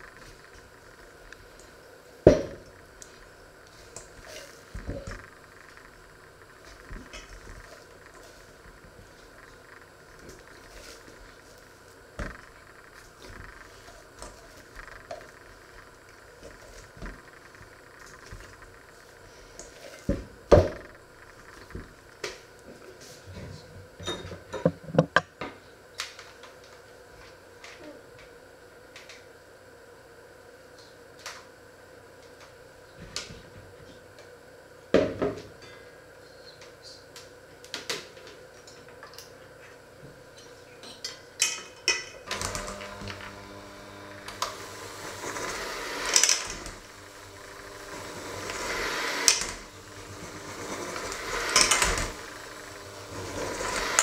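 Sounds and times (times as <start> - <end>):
hand mixer kneading dough: 42.2 - 54.0.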